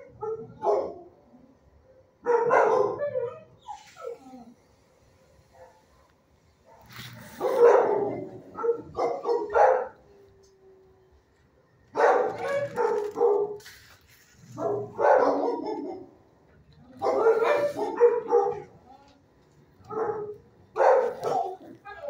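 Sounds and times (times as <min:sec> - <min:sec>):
dogs barking: 0:00.0 - 0:01.2, 0:02.1 - 0:03.6, 0:06.6 - 0:10.1, 0:11.9 - 0:13.6, 0:14.5 - 0:16.2, 0:17.0 - 0:18.8, 0:19.8 - 0:21.8.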